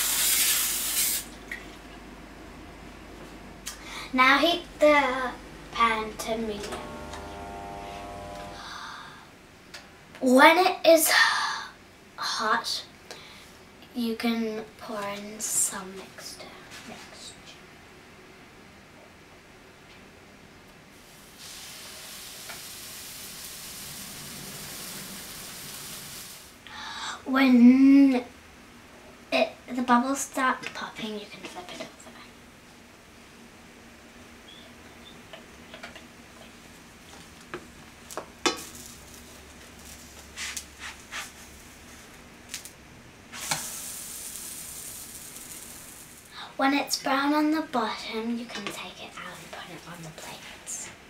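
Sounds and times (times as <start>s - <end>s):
batter sizzling in frying pan: 0.0s - 1.2s, 20.9s - 26.6s, 38.1s - 46.4s.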